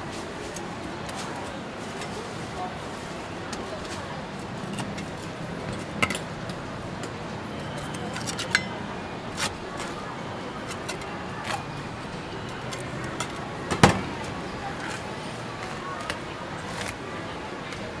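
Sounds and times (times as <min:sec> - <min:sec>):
market voices: 0:00.0 - 0:18.0
knife clinking on metal table: 0:07.8 - 0:08.8.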